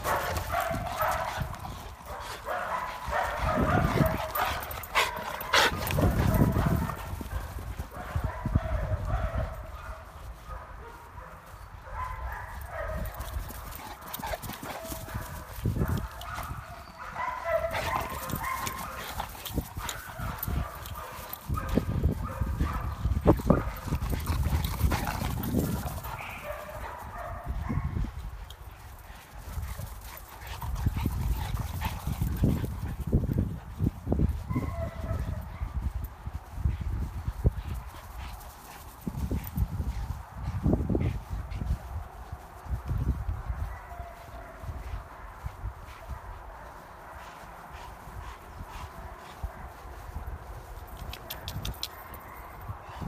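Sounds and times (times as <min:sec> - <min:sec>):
dogs barking: 0:00.0 - 0:28.1, 0:34.4 - 0:35.8, 0:43.6 - 0:45.4.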